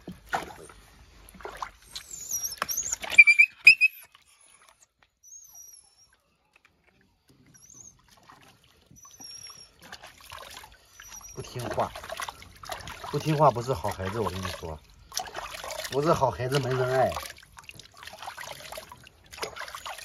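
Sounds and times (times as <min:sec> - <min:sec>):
water splashing in bathtub: 0:00.0 - 0:05.1, 0:06.1 - 0:20.0
dog whining: 0:01.8 - 0:04.1, 0:05.2 - 0:06.2, 0:07.5 - 0:08.1, 0:08.9 - 0:09.9, 0:10.9 - 0:11.9
faint high squeaks: 0:01.9 - 0:04.2, 0:08.9 - 0:09.8.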